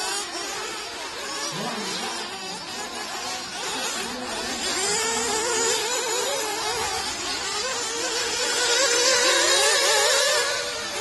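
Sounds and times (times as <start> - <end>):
rc car engines whining: 0.0 - 11.0.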